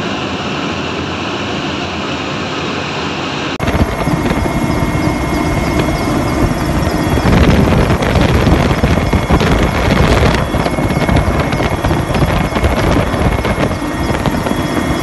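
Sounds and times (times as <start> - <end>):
helicopter engine and rotor: 0.0 - 15.0
rushing air: 3.6 - 15.0.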